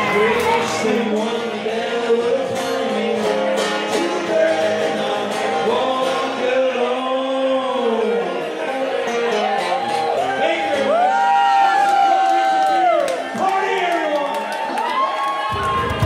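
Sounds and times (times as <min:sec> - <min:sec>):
man singing into a microphone: 0:00.0 - 0:11.0
acoustic guitar: 0:00.0 - 0:11.8.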